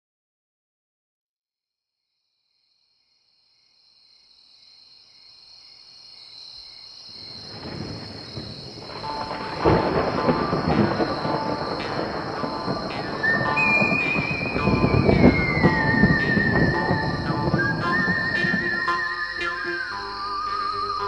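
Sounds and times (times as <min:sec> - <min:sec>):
crickets chirping: 0:02.3 - 0:21.0
thunder rumbling: 0:07.2 - 0:19.4
loud thunder boom: 0:07.4 - 0:18.9.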